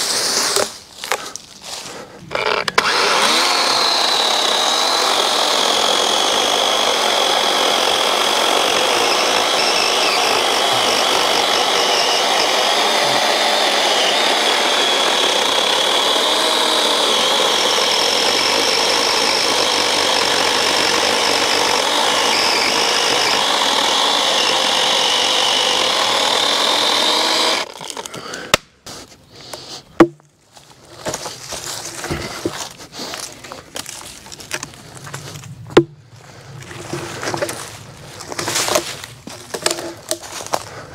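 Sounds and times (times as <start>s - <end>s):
chainsaw cutting log: 0.0s - 0.8s, 2.3s - 28.6s, 36.7s - 40.7s.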